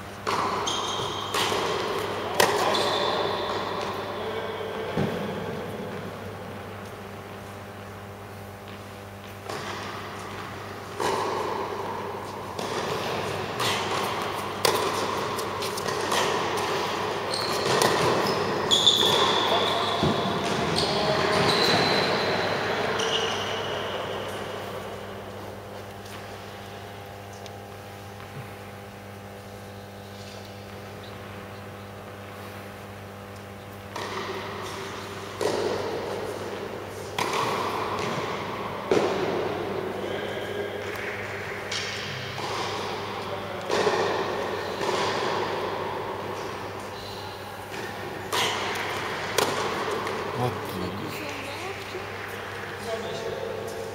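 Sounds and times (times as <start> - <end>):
low electrical hum: 0.0 - 53.9
tennis ball hits and bounces: 0.2 - 2.8, 12.5 - 18.3, 37.0 - 39.6, 47.7 - 50.3.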